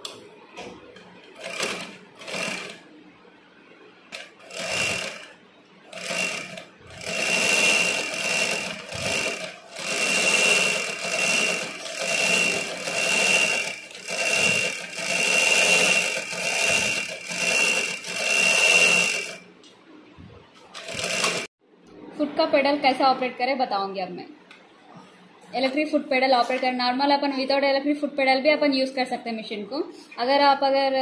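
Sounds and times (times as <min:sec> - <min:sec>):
sewing machine stitching: 0:01.3 - 0:02.8, 0:04.1 - 0:05.3, 0:05.9 - 0:19.4, 0:20.8 - 0:21.5.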